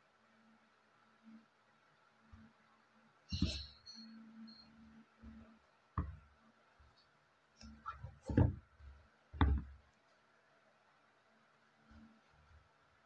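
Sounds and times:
small taps on wood: 0:06.0 - 0:06.2, 0:09.4 - 0:09.8
sneaker soles knocking on wood: 0:09.4 - 0:09.7.

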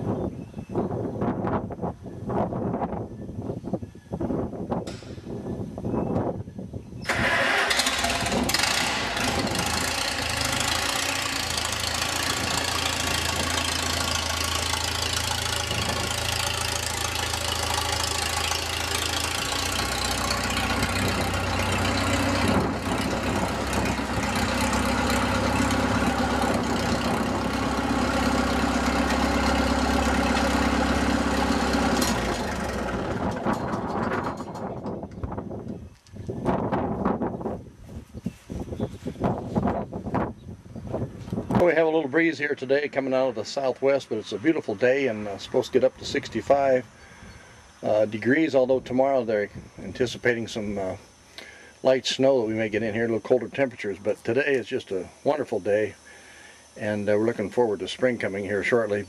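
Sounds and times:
tractor engine running: 0:07.1 - 0:35.8.

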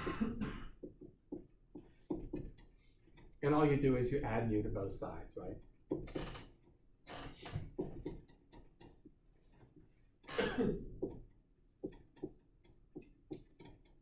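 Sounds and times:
short cough: 0:00.0 - 0:00.8, 0:10.3 - 0:10.9
writing on a board: 0:00.8 - 0:03.4, 0:10.9 - 0:14.0.

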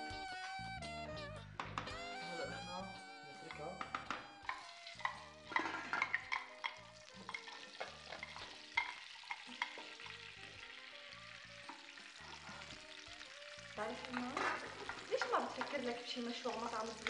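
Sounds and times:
food sizzling in a pan: 0:02.1 - 0:17.0
utensils and pot lid clicking: 0:03.4 - 0:10.0, 0:14.1 - 0:15.9
wooden spoon stirring: 0:03.4 - 0:10.1, 0:13.6 - 0:16.1.

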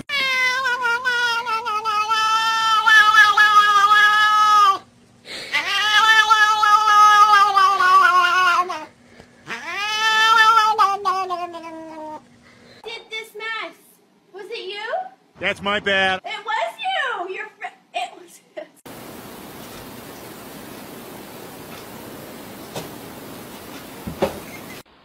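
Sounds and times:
cat yowling: 0:00.0 - 0:04.9, 0:05.5 - 0:08.9, 0:09.5 - 0:12.2.

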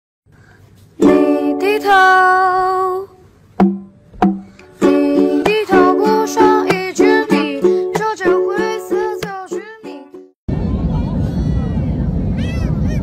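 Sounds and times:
plucked strings: 0:01.0 - 0:02.0, 0:03.6 - 0:10.4
person singing: 0:01.0 - 0:03.2, 0:04.6 - 0:10.3.

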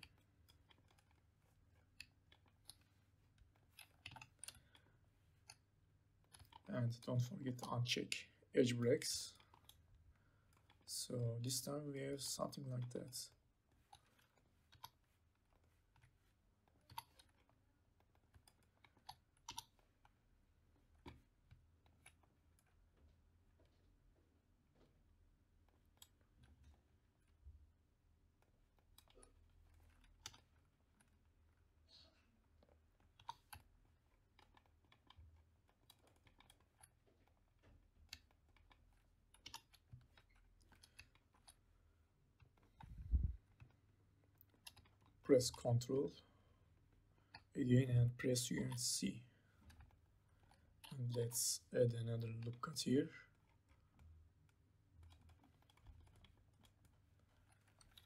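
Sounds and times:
low steady hum: 0:00.0 - 0:58.0
mouse and keyboard clicks: 0:03.6 - 0:05.6, 0:16.7 - 0:20.1, 0:33.0 - 0:41.6, 0:55.0 - 0:58.0.

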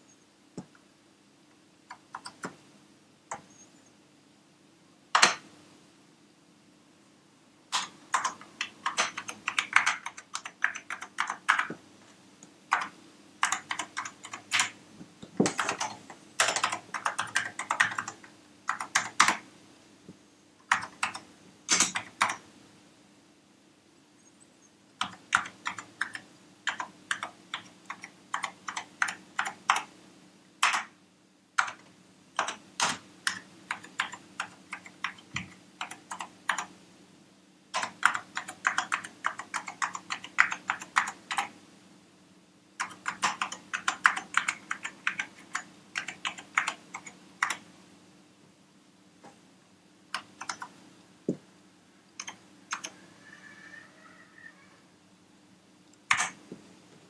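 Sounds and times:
faint low hum: 0:00.0 - 0:57.0
keyboard keys clicking: 0:01.9 - 0:02.6, 0:05.2 - 0:05.4, 0:07.7 - 0:11.8, 0:12.7 - 0:19.4, 0:20.7 - 0:22.4, 0:25.0 - 0:29.9, 0:30.6 - 0:30.9, 0:31.6 - 0:36.7, 0:37.8 - 0:41.5, 0:42.8 - 0:47.6, 0:50.1 - 0:50.7, 0:52.2 - 0:53.0, 0:56.0 - 0:56.4.

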